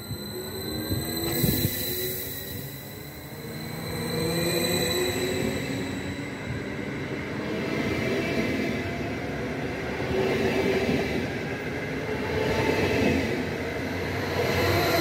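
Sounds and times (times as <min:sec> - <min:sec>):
faint rising train whine: 0:00.0 - 0:09.5, 0:13.3 - 0:15.0.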